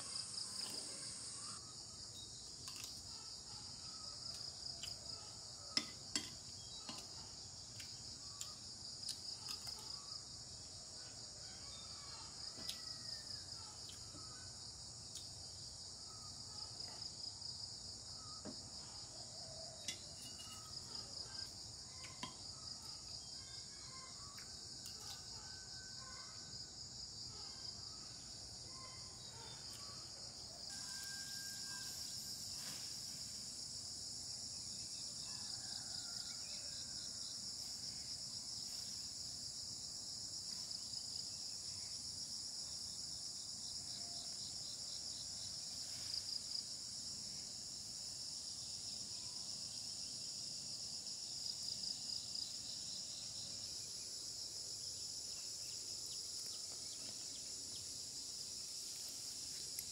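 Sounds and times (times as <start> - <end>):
insects chirring: 0.0 - 59.9
metal spoon clinking on plate: 19.9 - 20.7.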